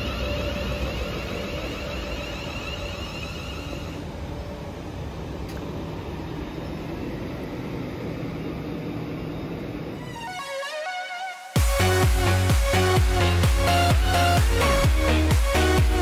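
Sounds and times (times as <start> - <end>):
faint train whine: 0.0 - 11.6.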